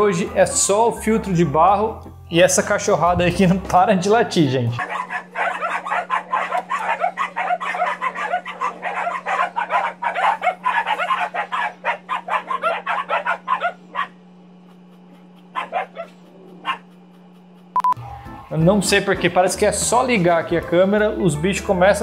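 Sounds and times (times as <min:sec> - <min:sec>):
steady low hum: 0:00.0 - 0:22.0
dogs barking rapidly: 0:04.8 - 0:17.5.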